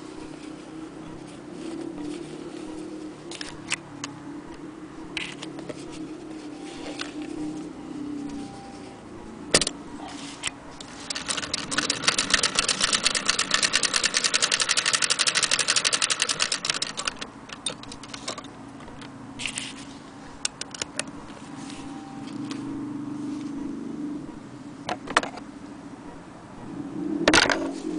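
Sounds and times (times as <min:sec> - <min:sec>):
hand-crank sewing machine clicking: 0:11.1 - 0:18.4.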